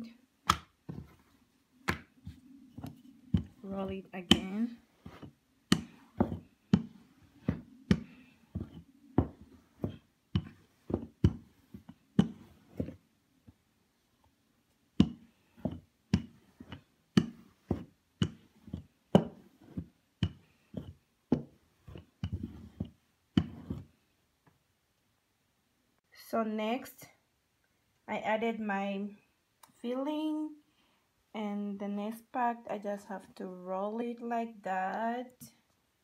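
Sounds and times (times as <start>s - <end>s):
rolling pin knocking on countertop: 2.8s - 3.6s, 4.3s - 13.0s, 15.0s - 23.9s.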